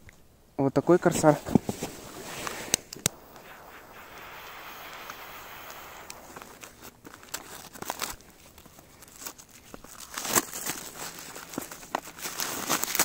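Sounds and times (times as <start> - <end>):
cellophane crinkling and tearing: 7.1 - 13.0.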